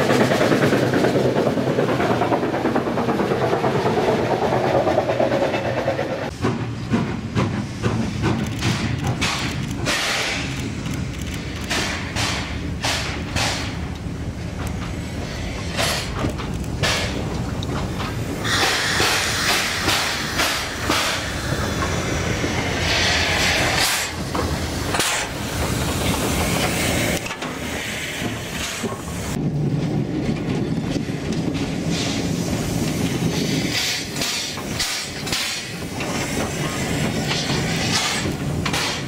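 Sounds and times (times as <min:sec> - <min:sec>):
steam locomotive moving: 0:00.0 - 0:39.0
steam hissing blasts: 0:07.5 - 0:10.8, 0:18.1 - 0:29.4, 0:31.8 - 0:39.0.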